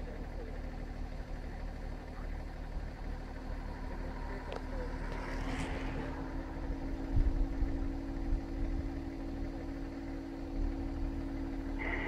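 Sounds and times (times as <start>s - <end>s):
vehicle engine idling: 0.0s - 12.0s
wind rumbling on microphone: 7.1s - 8.9s.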